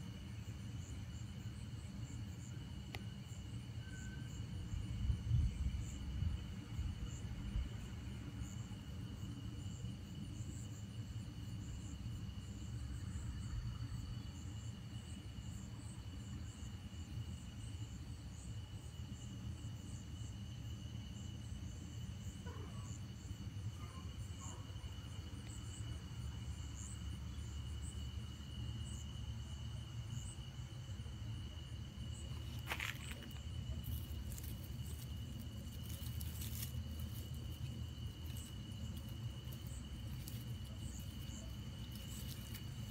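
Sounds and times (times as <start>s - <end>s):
insects trilling: 0.0s - 42.9s
pulsing insect chirp: 0.0s - 42.9s
low steady rumble: 23.0s - 42.9s.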